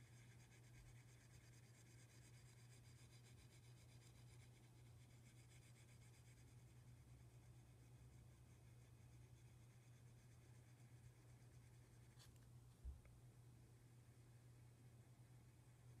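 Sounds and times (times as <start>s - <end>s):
pen nib scratching wood: 0.0s - 12.4s
steady low hum: 0.0s - 16.0s.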